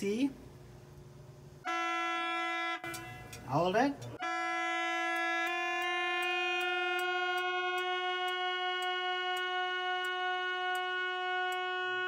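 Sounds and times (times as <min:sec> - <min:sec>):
light ticks: 0:02.9 - 0:04.2
organ reed pipe held note: 0:04.2 - 0:12.0.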